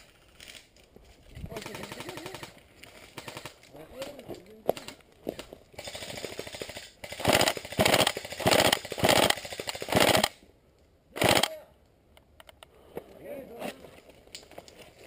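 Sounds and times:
airsoft rifle bursts: 5.8 - 10.4, 11.2 - 11.6.

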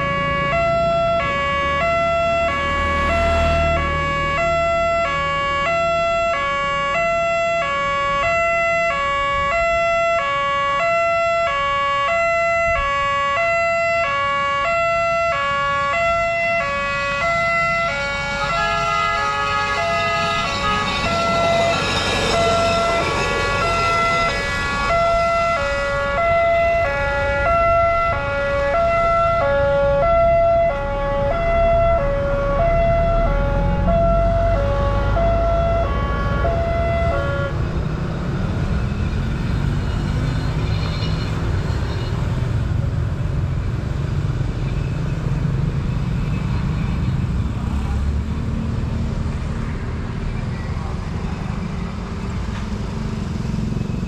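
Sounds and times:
two-pitch level crossing siren: 0.0 - 37.6
rail trolley engine passing: 18.2 - 54.0.

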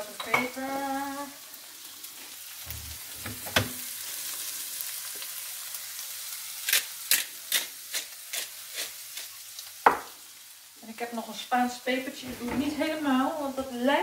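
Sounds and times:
vegetables sizzling in a pan: 0.0 - 14.0
pepper mill crunching clicks: 6.6 - 8.5.

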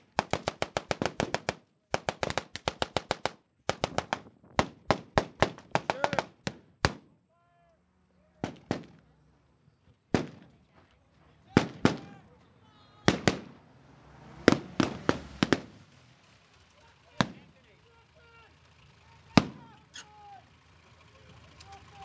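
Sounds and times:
automatic gunfire bursts: 0.0 - 7.0
man shouting: 5.9 - 6.3, 7.3 - 7.8, 11.5 - 13.2, 17.2 - 18.6, 19.2 - 20.5.

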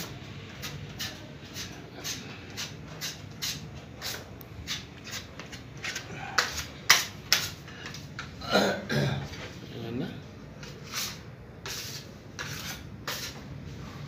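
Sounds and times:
putty knife scraping: 10.6 - 13.4.

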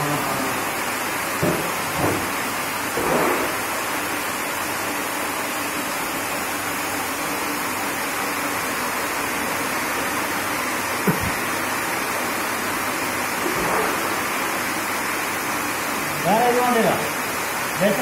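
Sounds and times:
short knock: 11.1 - 11.4.

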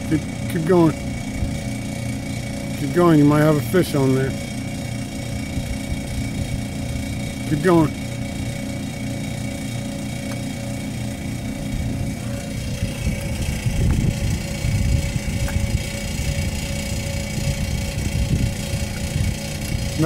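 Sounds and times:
motor humming: 0.0 - 20.0
irregular low rumbling: 10.2 - 20.0.

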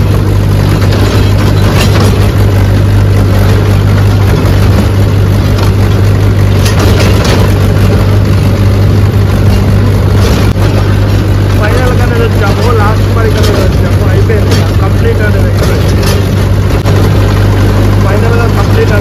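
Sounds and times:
tractor diesel engine running: 0.0 - 19.0.

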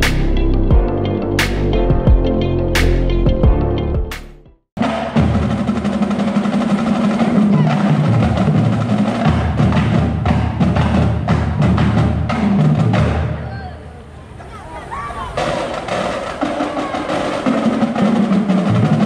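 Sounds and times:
snare drums: 0.0 - 0.3, 2.8 - 13.5, 15.3 - 19.0
bass drums: 0.0 - 5.9
tenor drums: 0.0 - 13.7, 15.1 - 19.0.

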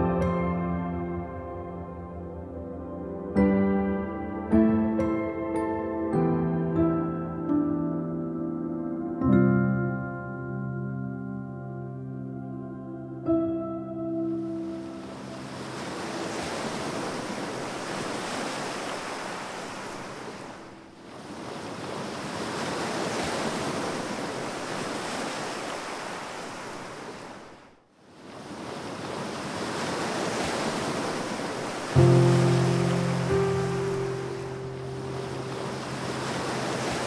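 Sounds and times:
music: 0.0 - 15.8, 32.0 - 36.9
rushing wind or surf: 14.6 - 37.0.

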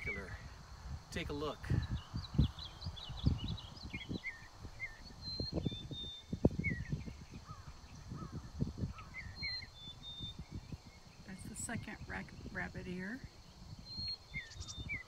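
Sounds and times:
small birds chirping: 0.0 - 15.0
rumbling thumping on microphone: 1.8 - 9.2.

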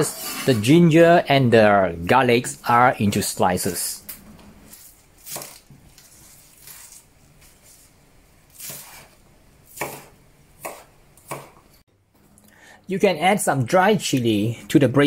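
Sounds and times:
knife chopping on cutting board: 8.6 - 11.6.

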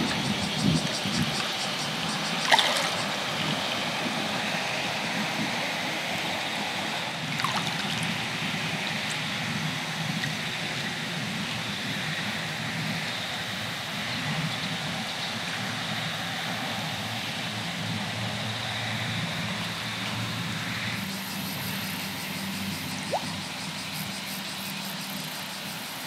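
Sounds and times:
small waves lapping: 0.0 - 5.4, 6.2 - 10.8.

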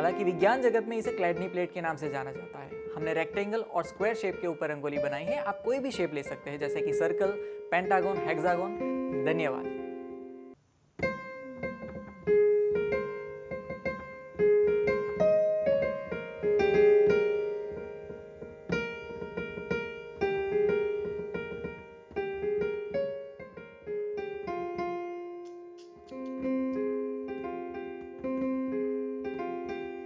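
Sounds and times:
keyboard melody: 0.0 - 30.0.

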